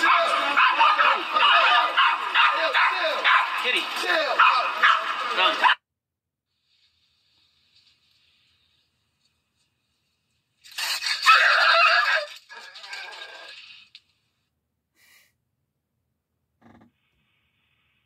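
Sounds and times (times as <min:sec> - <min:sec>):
cat and dog screeching and hissing: 0:00.0 - 0:03.6, 0:10.7 - 0:13.8.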